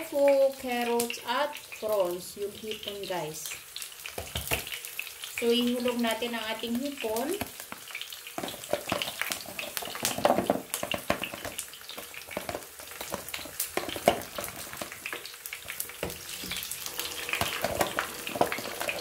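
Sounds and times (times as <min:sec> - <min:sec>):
onions sizzling in hot oil: 0:00.0 - 0:19.0
spatula stirring in pan: 0:07.4 - 0:19.0.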